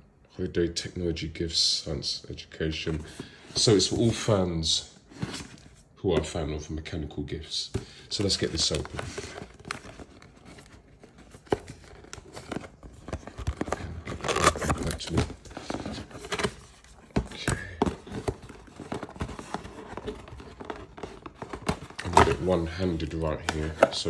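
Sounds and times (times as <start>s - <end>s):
card scraping and crinkling: 5.0s - 5.8s, 7.7s - 24.0s
cardboard box being opened: 8.2s - 24.0s.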